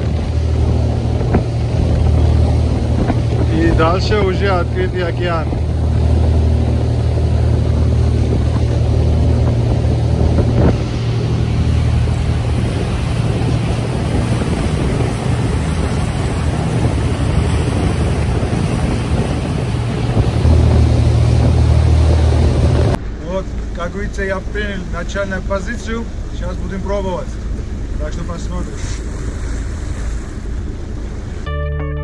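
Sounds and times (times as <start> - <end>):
wind on microphone: 0.0 - 23.0
water rushing past hull: 0.0 - 31.5
boat engine drone: 0.0 - 32.0.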